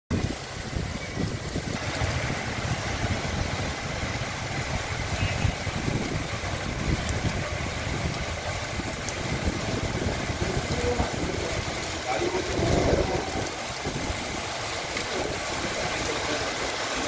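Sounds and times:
heavy rain falling: 0:00.1 - 0:17.0.

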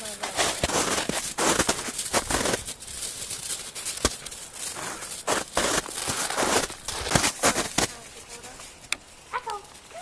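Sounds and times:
footsteps crunching in snow: 0:00.0 - 0:08.9.

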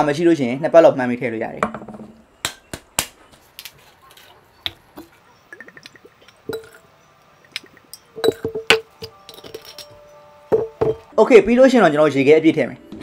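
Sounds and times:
liquid trickling: 0:04.9 - 0:08.7
glass and metal clinks: 0:05.6 - 0:11.1.

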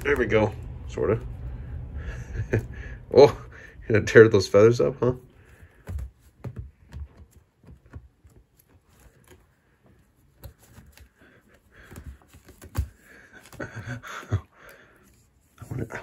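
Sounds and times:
cat claws scuffling on carpet: 0:05.2 - 0:16.0.

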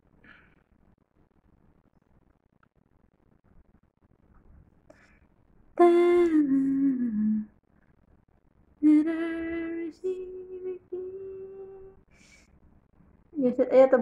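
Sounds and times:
person humming a slow tune: 0:05.8 - 0:07.6, 0:08.8 - 0:12.0.

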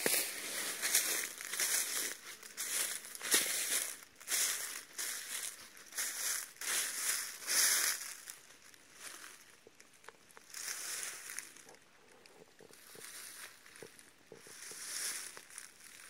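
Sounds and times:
footsteps crunching dry leaves: 0:00.0 - 0:11.8, 0:12.6 - 0:16.0.

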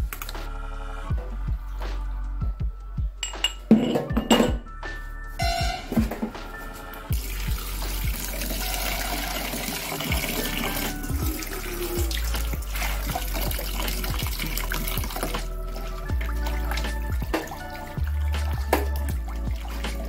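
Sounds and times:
steel bowls clinking: 0:03.2 - 0:04.6
tap water running into bowl: 0:07.1 - 0:20.0
water splashing: 0:07.1 - 0:20.0.

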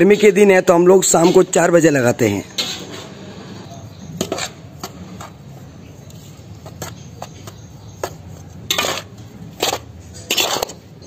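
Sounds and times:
spoon stirring spice powder: 0:03.6 - 0:11.0.

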